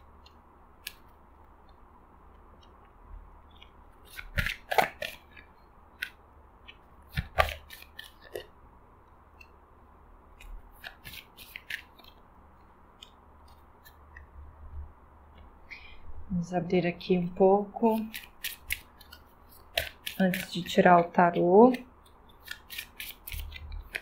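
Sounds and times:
cards snapping and slapping on table: 4.1s - 5.3s, 7.1s - 8.4s, 10.8s - 12.2s, 18.0s - 20.5s, 22.4s - 24.0s.

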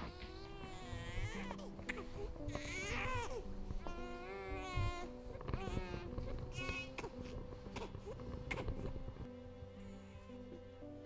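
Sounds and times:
baby crying: 0.0s - 8.7s
faint background music: 0.0s - 11.0s.

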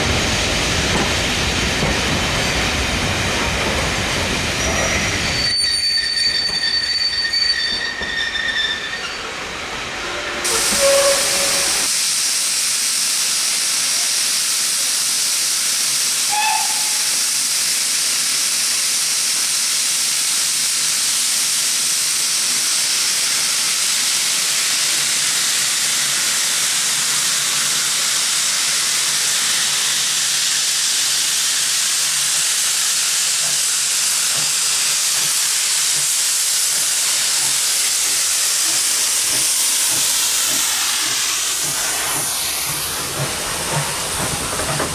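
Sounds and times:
steam engine hissing: 0.0s - 44.9s
wheel squeal: 4.6s - 9.4s, 10.5s - 11.9s.

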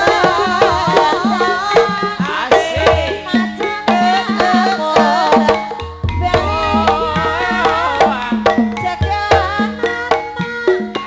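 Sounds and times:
metallophones: 5.8s - 9.8s
hand drums pitch-bending strokes: 5.8s - 10.0s
high wavering melody: 6.0s - 9.3s
low booming stroke: 6.0s - 9.5s.

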